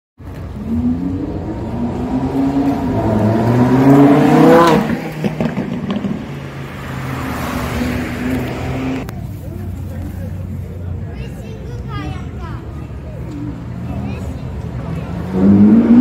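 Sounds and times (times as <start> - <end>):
sports car engine accelerating past: 0.4 - 9.0, 14.8 - 16.0.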